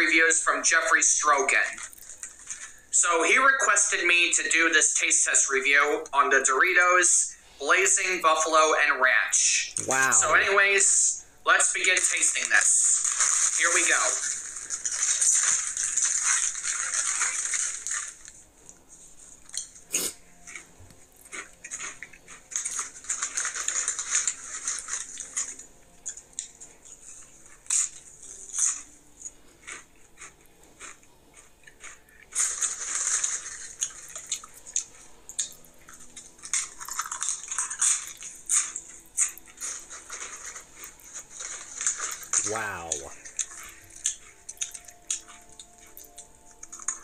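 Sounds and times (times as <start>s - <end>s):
chips crunching: 1.0s - 2.8s, 11.8s - 18.5s, 19.4s - 47.0s
foil chip bag crinkling: 12.6s - 18.5s, 21.3s - 25.7s, 31.8s - 47.0s.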